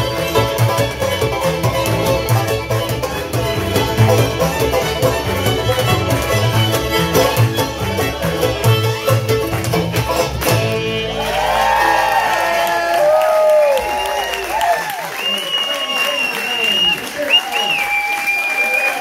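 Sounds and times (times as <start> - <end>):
bluegrass band playing: 0.0 - 13.2
people whooping: 11.0 - 19.0.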